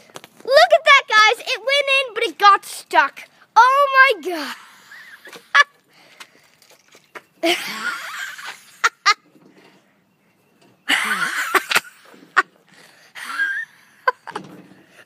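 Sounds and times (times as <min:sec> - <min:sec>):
person laughing: 0:07.4 - 0:09.3, 0:10.9 - 0:12.6, 0:13.2 - 0:14.4.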